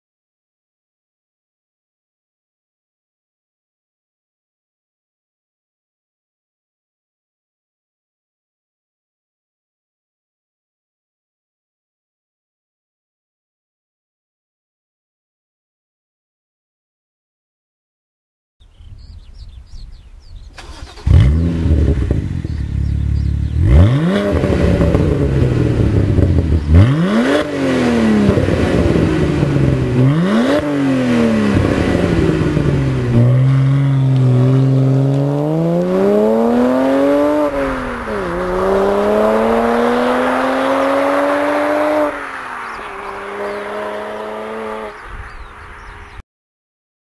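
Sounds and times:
car engine revving and accelerating: 0:20.6 - 0:46.2.

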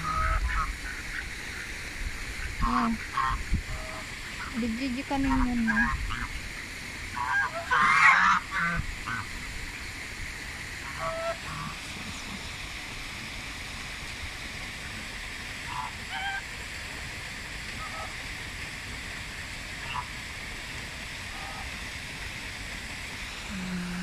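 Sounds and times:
steady hiss: 0:00.0 - 0:24.0
geese honking: 0:02.6 - 0:06.3, 0:07.2 - 0:09.3, 0:10.8 - 0:11.8, 0:15.7 - 0:16.4, 0:17.8 - 0:18.2, 0:19.8 - 0:20.1.

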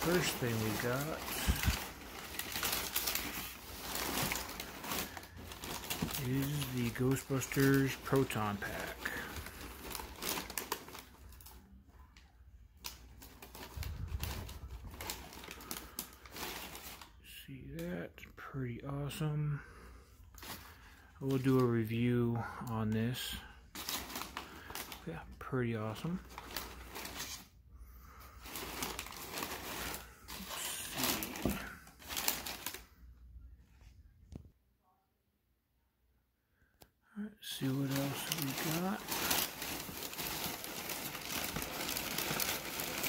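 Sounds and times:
packing paper rustling: 0:00.0 - 0:11.8, 0:12.8 - 0:17.2, 0:20.3 - 0:22.4, 0:23.1 - 0:33.1, 0:37.5 - 0:43.0.

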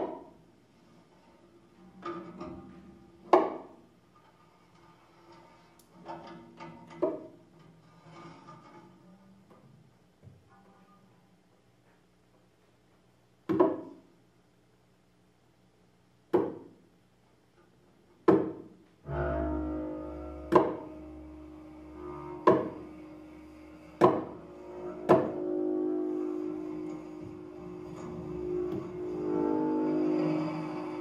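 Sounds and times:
double bass: 0:17.9 - 0:31.0
low bowed drone: 0:19.0 - 0:31.0
sharp struck hits: 0:19.1 - 0:31.0.

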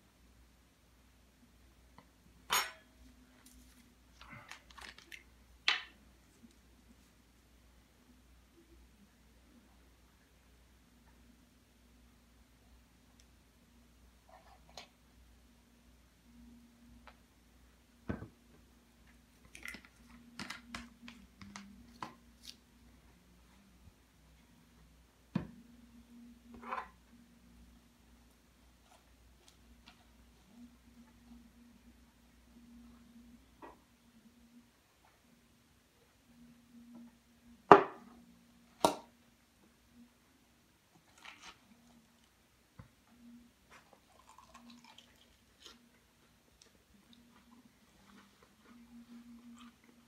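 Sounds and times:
faint steady hum: 0:00.0 - 0:50.0
tableware clinking: 0:02.5 - 0:03.0
small clicks and rustles: 0:03.3 - 0:05.3.

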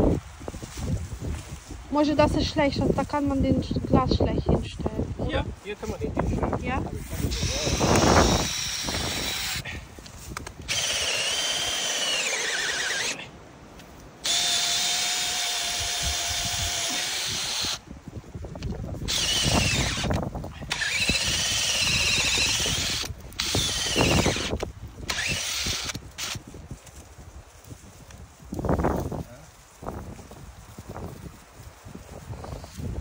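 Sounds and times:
power drill whine: 0:07.3 - 0:09.7, 0:10.6 - 0:13.2, 0:14.2 - 0:17.8, 0:19.1 - 0:26.4.

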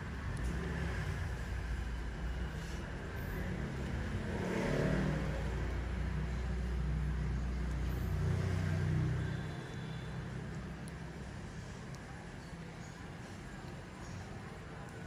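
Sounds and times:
vehicle engine rumbling past: 0:00.0 - 0:10.6.

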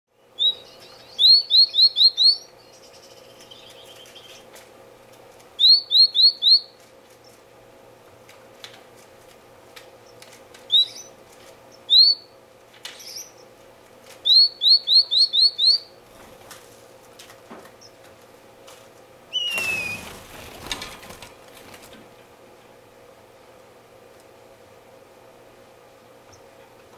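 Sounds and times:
bird high rising calls: 0:00.2 - 0:04.5, 0:05.6 - 0:06.8, 0:14.2 - 0:16.0, 0:19.3 - 0:20.4.

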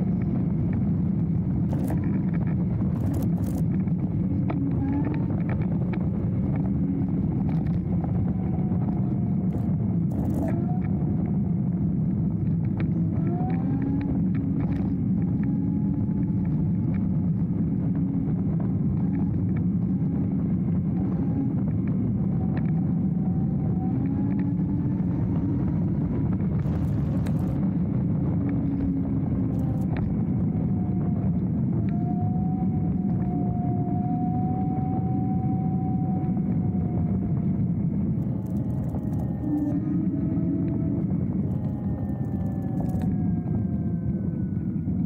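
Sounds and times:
faint electric motor whine: 0:00.0 - 0:45.0
wind: 0:00.0 - 0:45.0
small clicks: 0:01.6 - 0:11.3, 0:12.4 - 0:17.1, 0:22.4 - 0:27.7, 0:28.3 - 0:30.2, 0:38.2 - 0:43.7.

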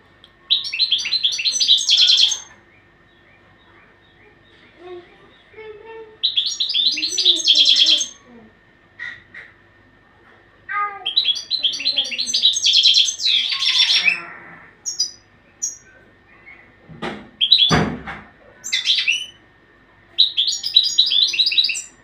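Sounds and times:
finch singing: 0:00.5 - 0:08.2, 0:11.0 - 0:16.8, 0:17.4 - 0:17.9, 0:18.6 - 0:19.4, 0:20.2 - 0:22.0.

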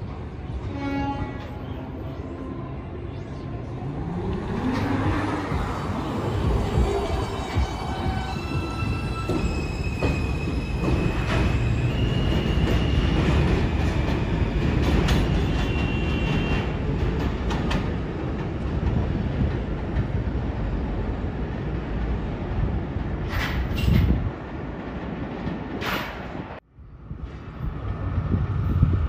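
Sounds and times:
train wheels rumbling on rail: 0:03.9 - 0:29.0
high wheel squeal: 0:07.1 - 0:13.5.

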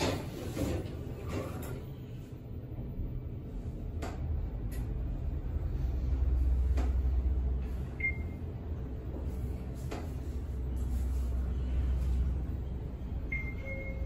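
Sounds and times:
elevator hum and rumble: 0:00.0 - 0:14.0
short high beep: 0:13.3 - 0:14.0.

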